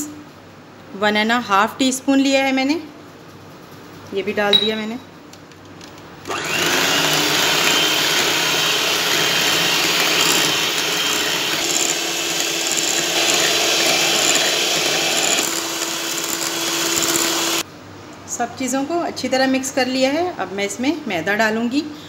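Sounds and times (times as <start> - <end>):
electric hand mixer whirring: 6.3 - 17.6.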